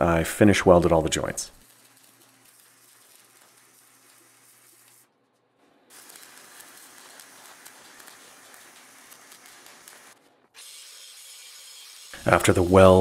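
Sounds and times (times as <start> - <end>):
welder arc crackling: 0.4 - 5.2, 5.8 - 13.0
faint hiss: 11.4 - 13.0.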